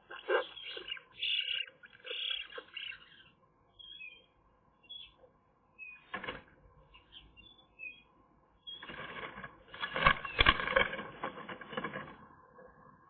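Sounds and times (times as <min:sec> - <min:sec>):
birds rustling in twig nest: 0:00.0 - 0:03.0, 0:08.7 - 0:12.3.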